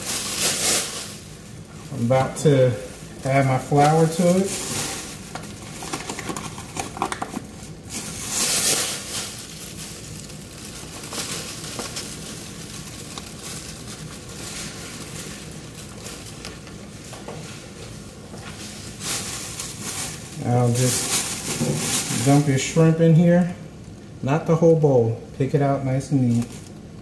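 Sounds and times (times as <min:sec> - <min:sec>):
flour shaken into bag: 0:00.0 - 0:22.9
frying pan sizzling: 0:00.0 - 0:23.2
plastic bag crinkling: 0:00.0 - 0:24.0, 0:25.9 - 0:27.0.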